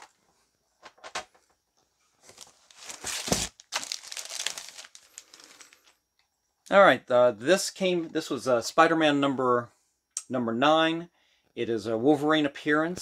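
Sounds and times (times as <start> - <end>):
packaging crinkling: 2.2 - 5.9.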